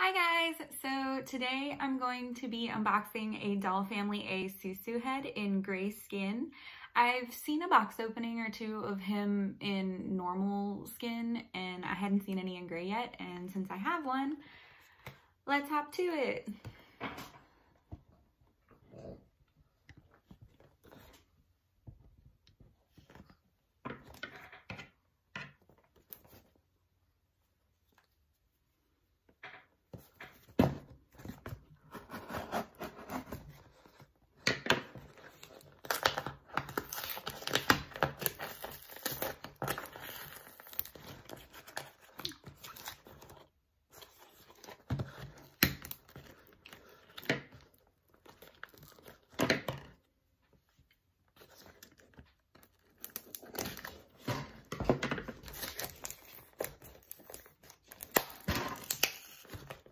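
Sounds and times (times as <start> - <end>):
packing tape tearing: 35.4 - 43.4, 55.4 - 59.9.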